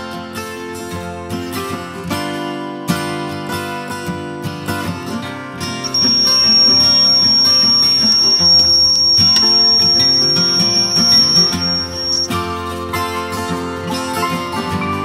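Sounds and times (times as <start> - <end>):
acoustic guitar background music: 0.0 - 7.6, 8.3 - 15.0
multimeter continuity beep: 5.8 - 12.4.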